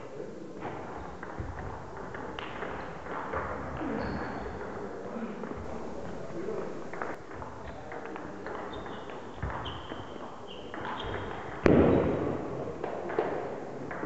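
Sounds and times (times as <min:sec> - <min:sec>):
shoes squeaking on wooden floor: 0:03.8 - 0:04.6, 0:08.5 - 0:11.3.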